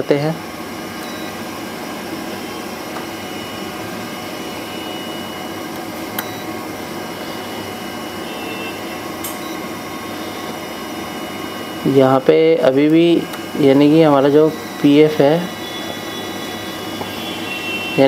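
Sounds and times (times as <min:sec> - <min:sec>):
faint high whine: 0:02.3 - 0:05.6, 0:07.1 - 0:12.7, 0:13.6 - 0:18.0.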